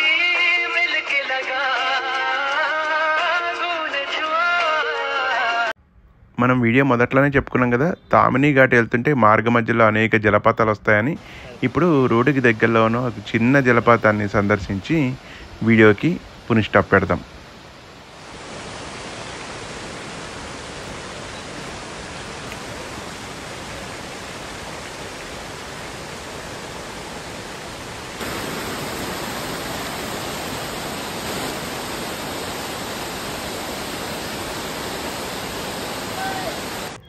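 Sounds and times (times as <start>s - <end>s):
waterfall rushing over rocks: 11.2s - 16.6s, 17.3s - 37.0s.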